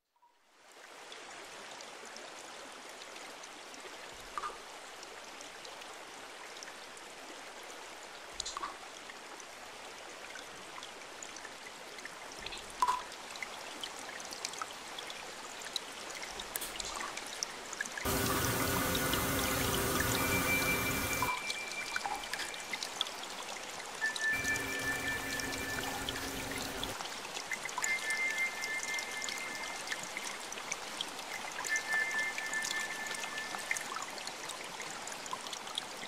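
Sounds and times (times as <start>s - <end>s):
trickling running water: 14.7s - 36.0s
clear drip-like note: 18.1s - 22.6s, 24.0s - 27.0s.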